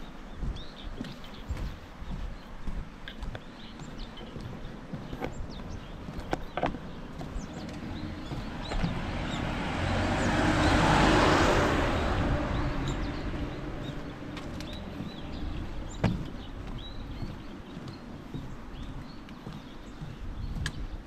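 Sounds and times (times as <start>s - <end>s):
birds chirping: 0.0s - 21.0s
car passing: 6.9s - 17.8s.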